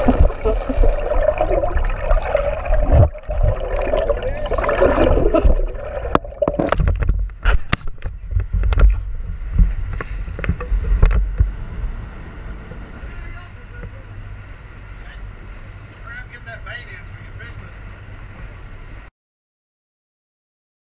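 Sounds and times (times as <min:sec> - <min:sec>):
water churning underwater: 0:00.0 - 0:15.9
boat noise: 0:00.0 - 0:19.1
sharp knocks and clicks: 0:06.1 - 0:09.0, 0:09.6 - 0:11.6.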